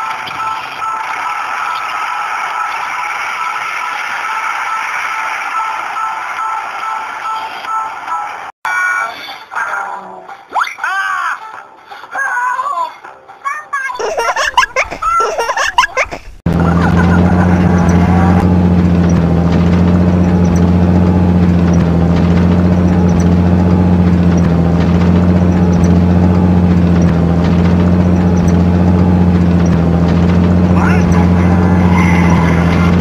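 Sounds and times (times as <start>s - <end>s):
children's voices and laughter: 13.5s - 17.8s
truck engine humming: 14.0s - 33.0s.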